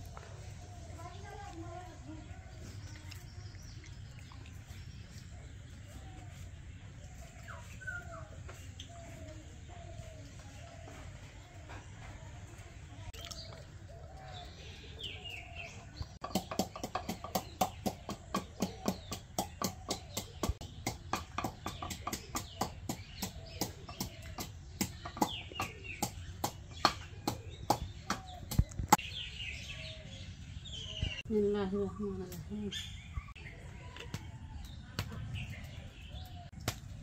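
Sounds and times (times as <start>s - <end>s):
birds calling: 0.0s - 37.0s
knife chopping food: 16.2s - 28.8s.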